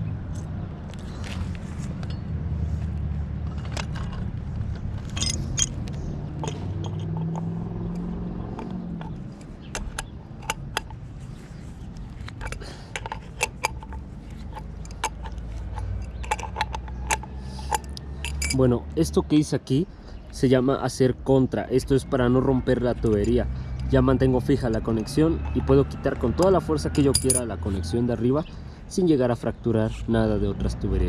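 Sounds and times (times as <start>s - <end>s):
pipe wrenches clinking and scraping: 3.4s - 18.8s, 22.7s - 27.9s
sharp metallic clicks: 3.7s - 11.0s, 11.9s - 18.6s.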